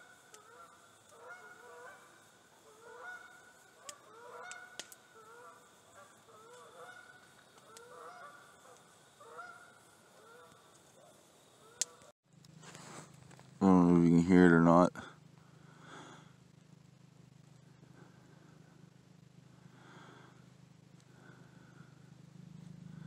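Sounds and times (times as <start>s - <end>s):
geese honking: 0.0s - 10.8s, 11.6s - 12.1s
campfire crackling: 0.0s - 23.0s.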